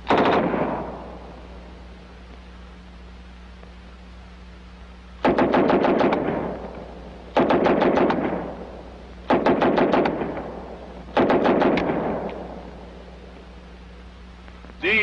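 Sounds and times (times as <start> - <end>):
submachine gun bursts with echo: 0.0 - 1.6, 5.2 - 12.9.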